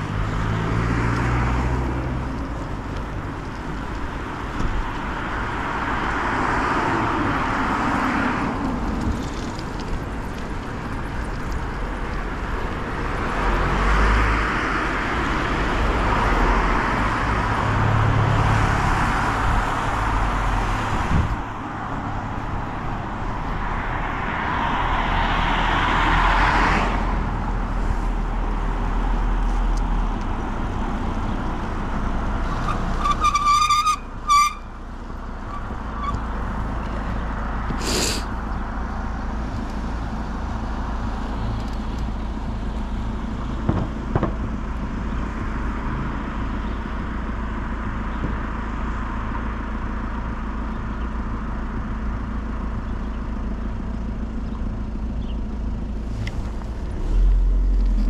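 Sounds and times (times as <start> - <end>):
wind noise: 19.0 - 23.6
bicycle tyre noise: 37.7 - 38.4.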